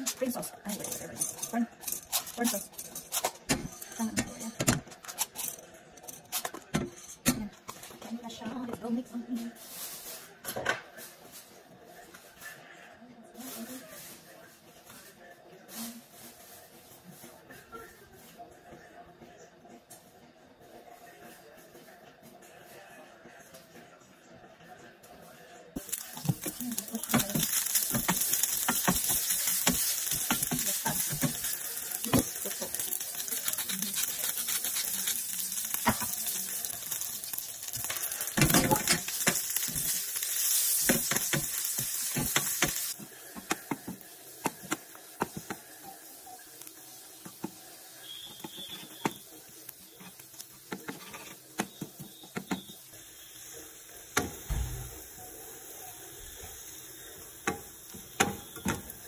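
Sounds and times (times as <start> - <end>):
meat sizzling in a frying pan: 25.8 - 59.0
spatula scraping a pan: 26.1 - 43.8, 48.0 - 49.2, 50.0 - 52.7.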